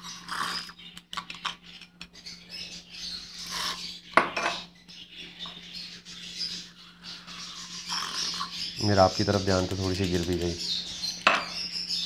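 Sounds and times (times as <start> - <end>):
utensils clinking on hard surface: 4.2 - 4.6.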